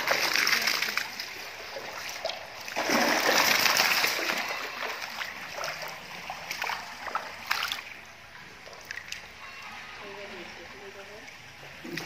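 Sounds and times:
fish thrashing in shallow water: 0.0 - 8.0.

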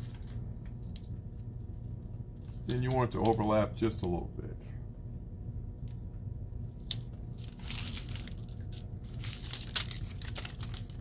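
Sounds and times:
metal tape crinkling and rustling: 0.0 - 4.2, 6.6 - 11.0.

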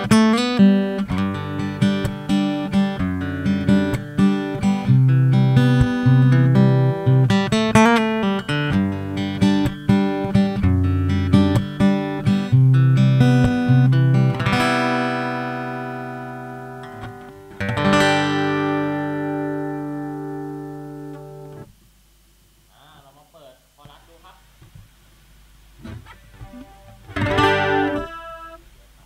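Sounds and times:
acoustic guitar playing: 0.0 - 21.8, 25.8 - 29.0.

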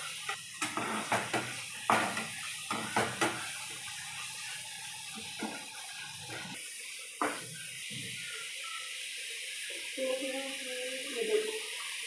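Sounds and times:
masala sizzling in pan: 0.0 - 12.0
spatula scraping a steel pan: 0.6 - 3.2.

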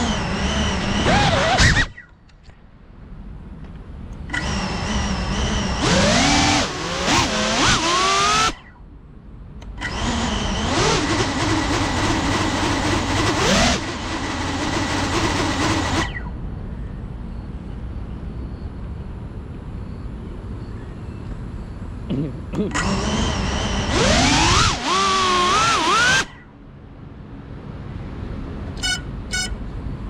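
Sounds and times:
drone motors whining: 0.0 - 2.2, 4.2 - 8.9, 9.6 - 16.4, 22.6 - 26.6.

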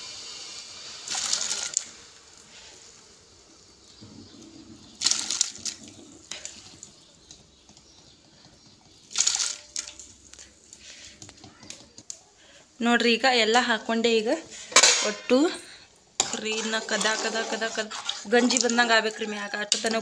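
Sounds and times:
pearls splashing into water: 5.0 - 6.0, 9.1 - 10.1.

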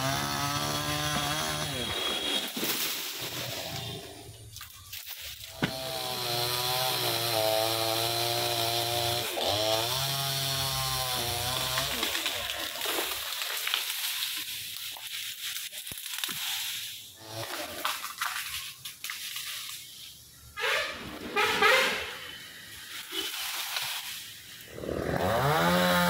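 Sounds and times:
chainsaw engine running: 0.0 - 2.4, 5.5 - 12.9, 24.7 - 26.0.

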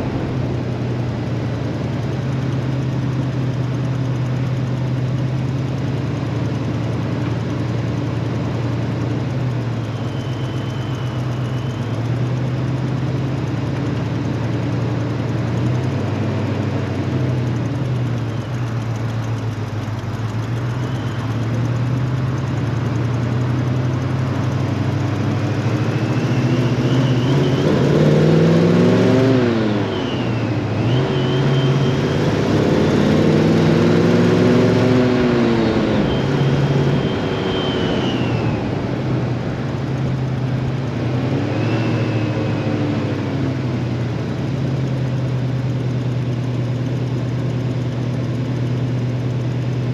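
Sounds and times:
car engine revving: 0.0 - 49.9.

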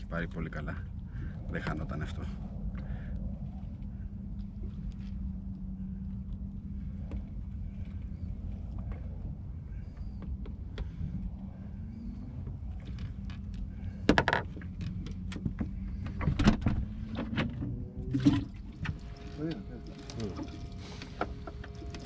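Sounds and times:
boat engine idling: 17.7 - 22.0.

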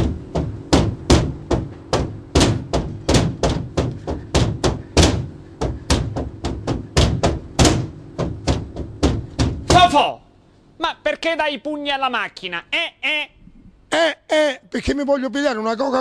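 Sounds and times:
fist thudding on vending machine: 0.0 - 10.0.

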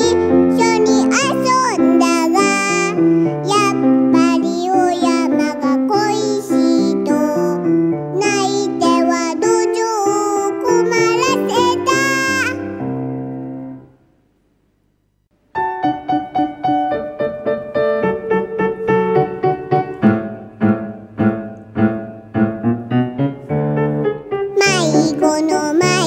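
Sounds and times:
grand piano playing: 0.0 - 13.9, 15.5 - 26.0.

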